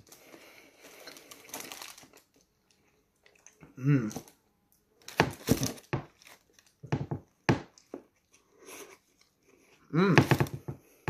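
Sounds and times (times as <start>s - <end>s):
paper wrapper rustling: 0.0s - 2.5s.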